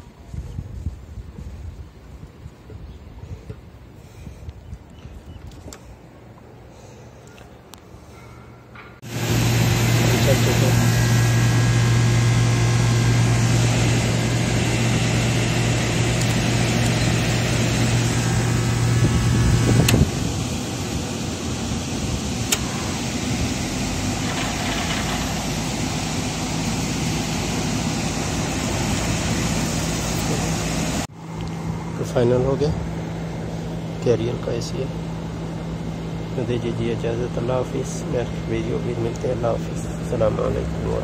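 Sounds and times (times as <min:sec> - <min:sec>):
air conditioner humming: 0:08.6 - 0:41.0.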